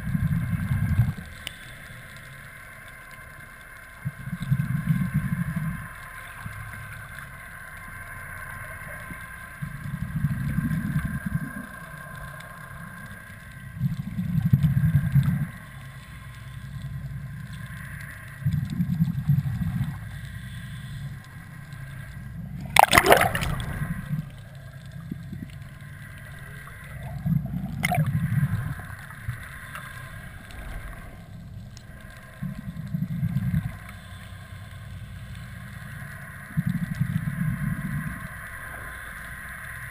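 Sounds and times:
steady high hum: 0.0 - 39.9
bubbles gushing from regulator: 22.5 - 24.4, 26.6 - 28.9
sharp splash or knock: 22.8 - 23.6.

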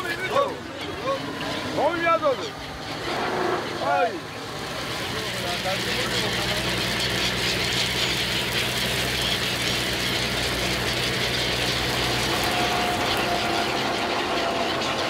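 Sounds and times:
boat engine humming: 0.0 - 15.0
water streaming off a net: 5.4 - 13.6.

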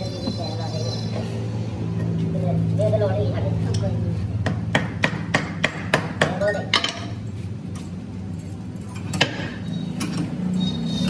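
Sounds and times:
hammer strikes: 4.4 - 7.1.

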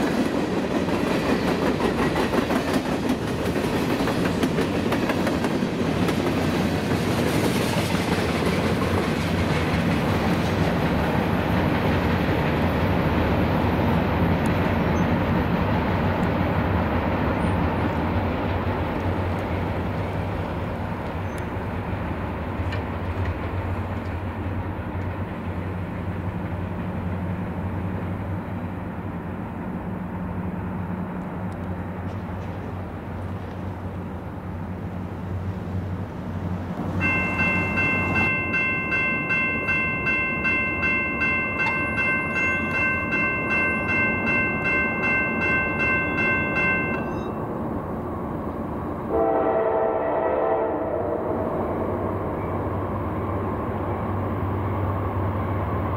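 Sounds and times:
freight train rumbling: 0.0 - 55.9
railroad crossing bell ringing: 37.0 - 48.0
locomotive horn chord: 49.1 - 51.4.

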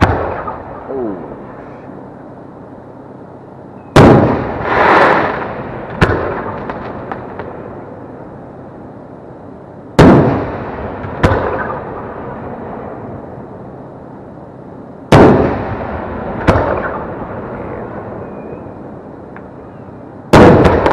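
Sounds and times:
mortar launch crack: 4.0 - 7.5, 10.0 - 11.8, 20.3 - 20.9.

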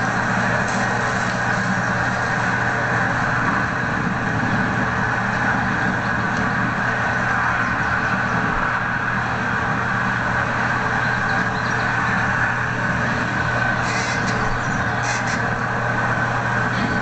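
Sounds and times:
low even hum: 0.0 - 17.0
steady hiss: 9.8 - 17.0.

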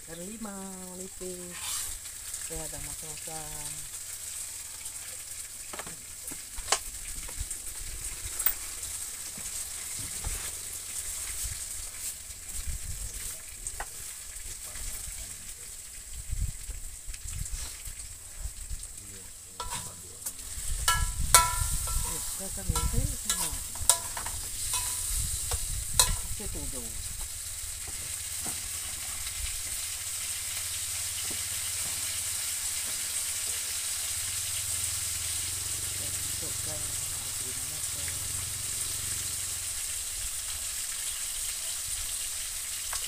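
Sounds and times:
food sizzling in oil in a wok: 0.0 - 43.0
stirring knocks and scrapes: 1.5 - 2.0, 8.1 - 12.6, 19.6 - 26.5, 31.2 - 32.2
metal ladle clinking against wok: 19.6 - 20.0, 20.9 - 25.2, 26.0 - 26.4.

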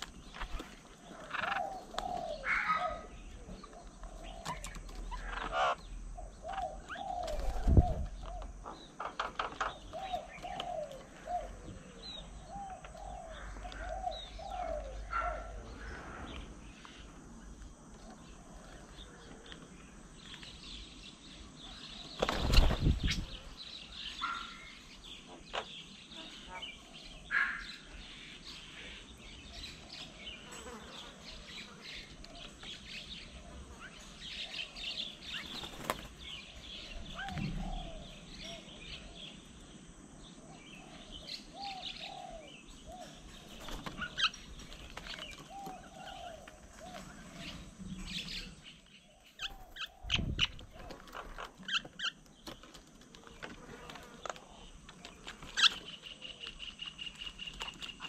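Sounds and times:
birds chattering and chirping: 0.0 - 58.0
wing flaps: 7.2 - 8.2, 22.2 - 23.4.

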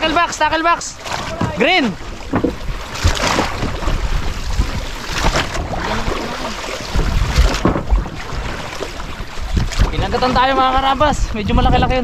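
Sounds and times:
water slapping boat hull: 0.0 - 12.0
wind buffeting microphone: 0.0 - 12.0.

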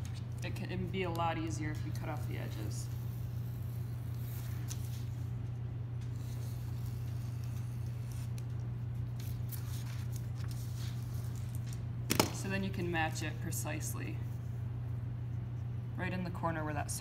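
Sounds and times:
steady low hum: 0.0 - 17.0
paper rustling: 6.0 - 11.8.

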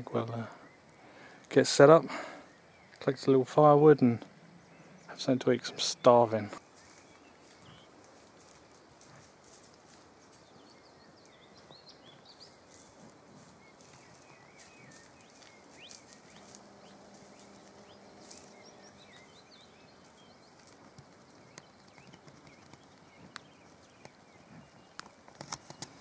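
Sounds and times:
small birds twittering: 0.0 - 26.0
snapping twigs and rustling bracken: 6.5 - 10.5, 12.4 - 26.0
low steady hum: 12.7 - 21.8.

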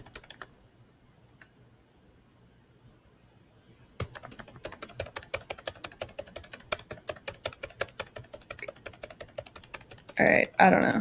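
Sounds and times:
computer mouse clicking rapidly: 0.0 - 0.5, 4.0 - 11.0.

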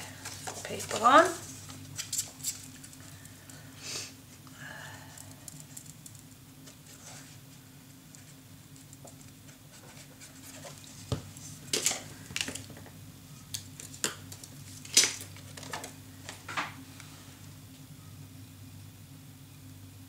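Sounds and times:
paper and card rustling: 0.0 - 3.2, 8.2 - 12.7.

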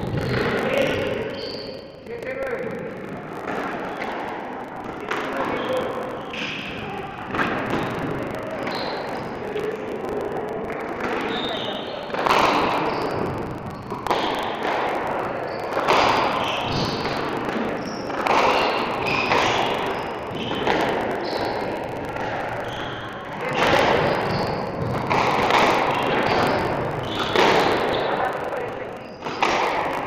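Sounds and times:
squash ball hitting rackets and walls: 15.7 - 21.6.

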